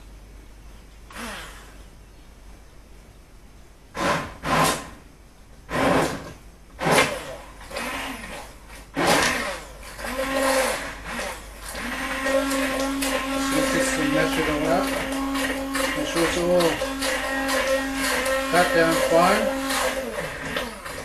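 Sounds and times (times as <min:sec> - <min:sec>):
electric blender whining: 0:01.1 - 0:01.7, 0:06.8 - 0:21.0.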